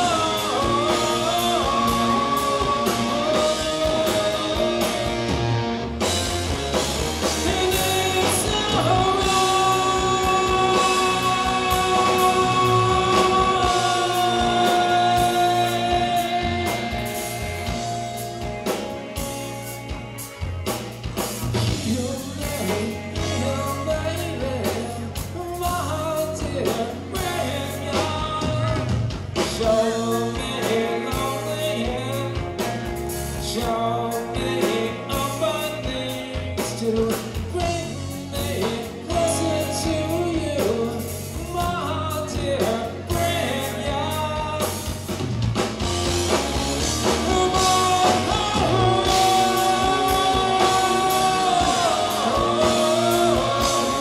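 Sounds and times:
singer holding long notes: 0.0 - 5.8, 7.2 - 20.5, 46.7 - 54.0
live rock band playing: 0.0 - 54.0.

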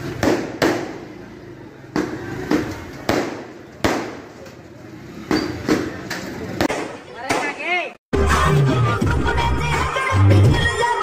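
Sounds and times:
fireworks bangs: 1.9 - 4.4.

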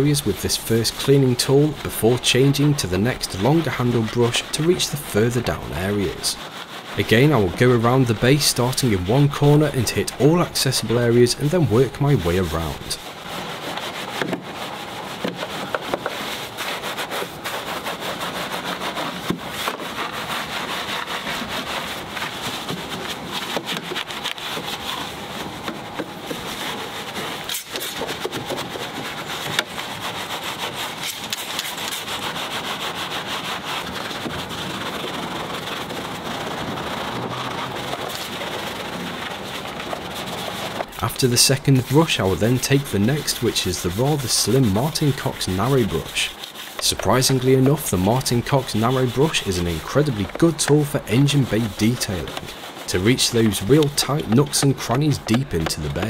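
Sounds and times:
brush scrubbing plastic and metal: 0.0 - 56.0.

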